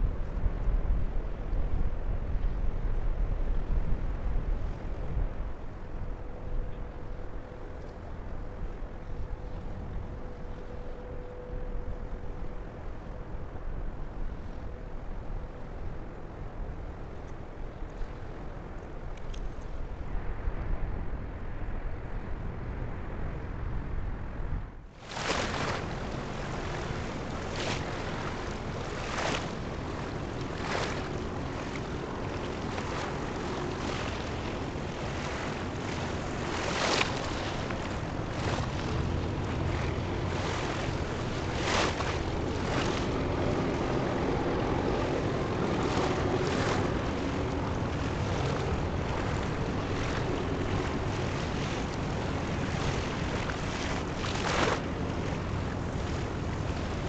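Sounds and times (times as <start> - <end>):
wind buffeting microphone: 0.0 - 57.0
waves washing: 25.0 - 57.0.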